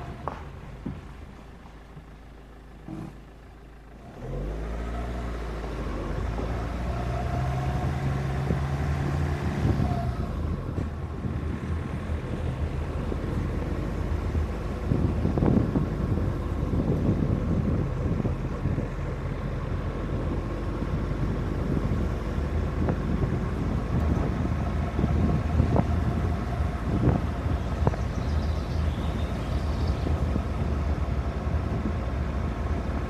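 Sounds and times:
tyres on gravel: 0:00.0 - 0:03.8
car engine revving: 0:04.0 - 0:33.0.

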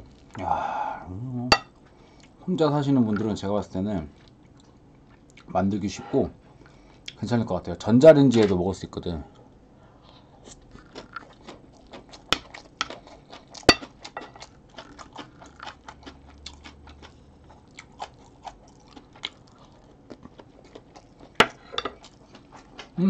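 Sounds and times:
crunchy chewing: 0:10.1 - 0:23.0.

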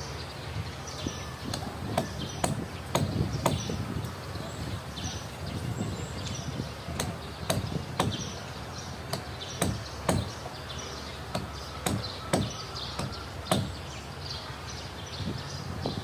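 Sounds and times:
hammer blows on wood: 0:01.5 - 0:03.9, 0:06.9 - 0:08.3, 0:09.1 - 0:10.4, 0:11.3 - 0:13.8.

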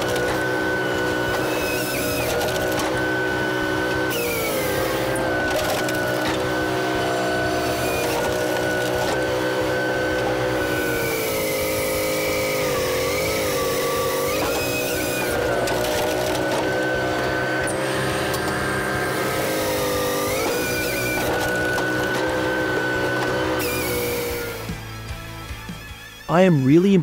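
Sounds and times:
firewood processor running: 0:00.0 - 0:25.8.

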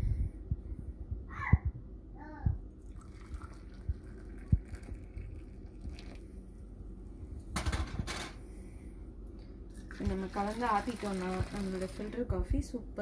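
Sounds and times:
milk pouring and splashing: 0:02.8 - 0:06.4, 0:09.7 - 0:12.2
metallic knocks and clatter: 0:07.6 - 0:08.4.

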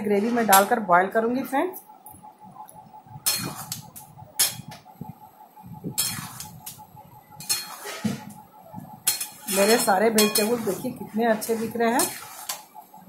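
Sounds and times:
ladle scraping metal pot: 0:06.0 - 0:06.6, 0:07.4 - 0:08.2, 0:09.1 - 0:12.8.

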